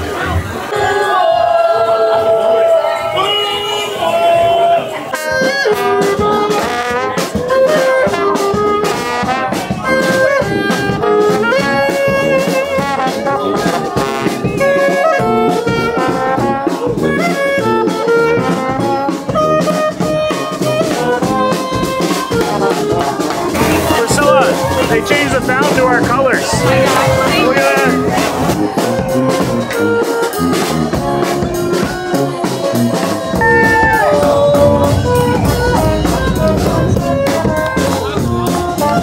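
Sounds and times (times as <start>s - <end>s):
horns playing melody: 3.2s - 39.0s
brass band playing jazz: 3.3s - 39.0s
drum kit: 18.4s - 39.0s.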